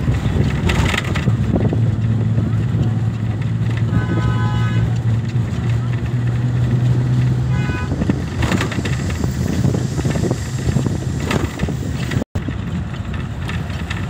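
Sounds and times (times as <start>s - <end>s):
vehicle road and engine noise: 0.0s - 14.0s
short car horn beep: 3.9s - 4.9s, 7.5s - 8.0s.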